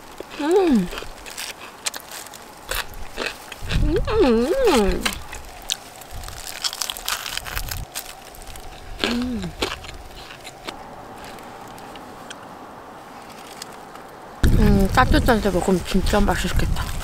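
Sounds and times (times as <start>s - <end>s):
plastic gloves crinkling: 0.0s - 3.7s, 4.8s - 10.6s
crunching of fried chicken: 0.0s - 4.0s, 4.7s - 12.4s.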